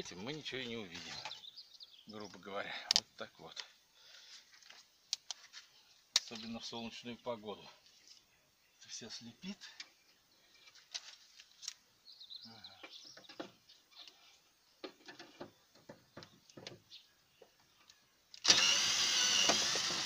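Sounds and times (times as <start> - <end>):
tool handling clicks and knocks: 14.8 - 16.9
cordless drill running: 18.4 - 20.0.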